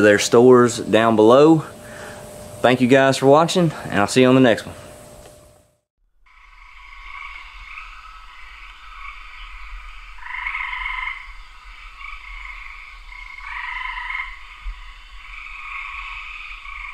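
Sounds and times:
frogs trilling: 6.3s - 16.9s
loud frog calls: 6.3s - 16.9s.

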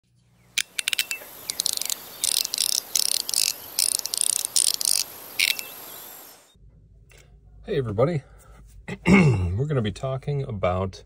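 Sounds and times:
rapid high-pitched clicking and rattling: 0.6s - 5.7s.

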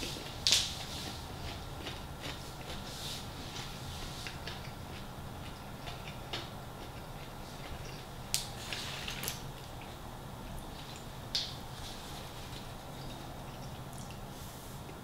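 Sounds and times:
soft chewing clicks: 1.3s - 2.9s, 3.5s - 8.5s, 12.5s - 14.3s.

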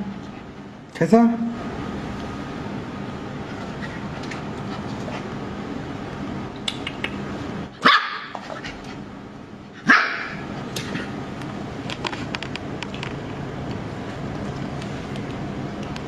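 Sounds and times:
puppy barking: 7.8s - 8.4s, 9.8s - 10.5s.

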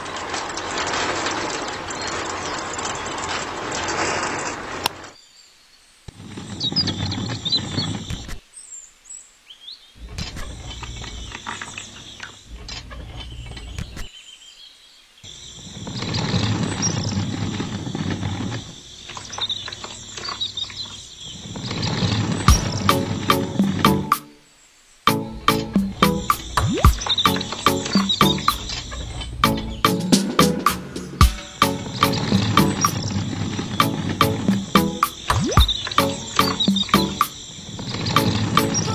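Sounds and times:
high chirps: 22.5s - 24.4s, 25.1s - 38.9s.

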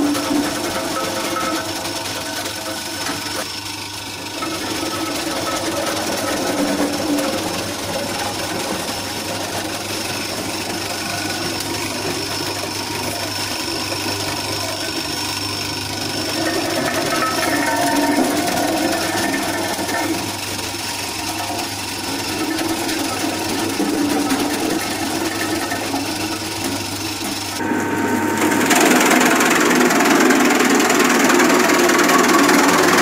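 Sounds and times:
cutter chopping green fodder: 0.0s - 33.0s
electric motor hum: 0.0s - 33.0s.

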